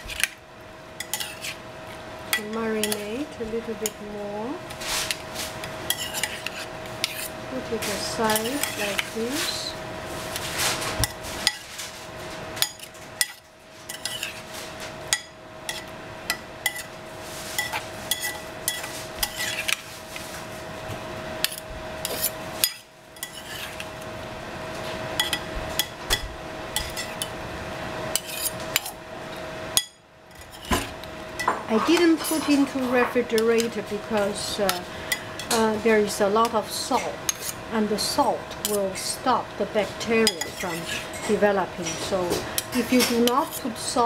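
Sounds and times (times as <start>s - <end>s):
metal spoons clinking on bowl: 2.3s - 3.1s, 8.0s - 9.1s, 31.7s - 35.7s, 40.1s - 43.7s.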